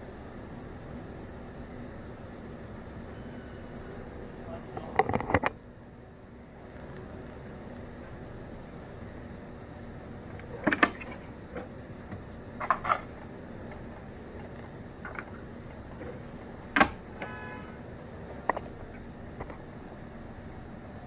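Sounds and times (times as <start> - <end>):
brief electronic tone: 3.0 - 4.0.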